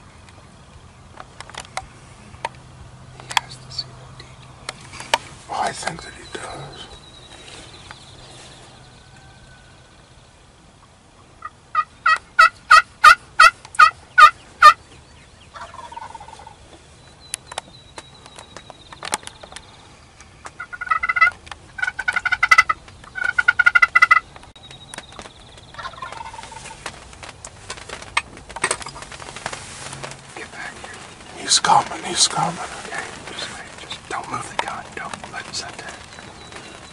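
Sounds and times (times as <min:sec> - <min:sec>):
turkey gobbling: 0:11.4 - 0:14.8, 0:15.5 - 0:16.6, 0:20.6 - 0:24.3, 0:25.8 - 0:26.8
turkey hen yelps: 0:11.4 - 0:14.8, 0:20.6 - 0:24.2.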